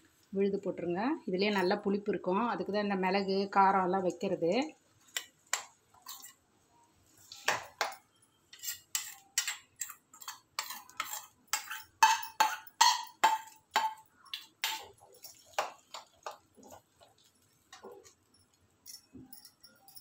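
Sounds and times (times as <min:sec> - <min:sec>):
metal spoon scraping steel bowl: 0:06.0 - 0:06.4, 0:08.5 - 0:13.6.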